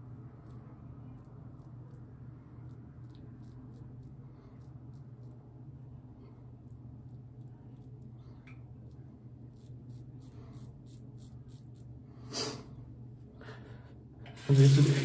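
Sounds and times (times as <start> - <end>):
razor scraping stubble: 0.4 - 5.5, 8.8 - 12.5.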